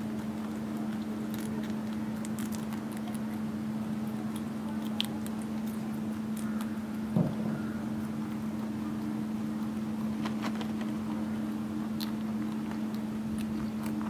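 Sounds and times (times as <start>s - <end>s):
rabbits nibbling and scuffling: 0.0s - 14.0s
steady low hum: 0.0s - 14.0s.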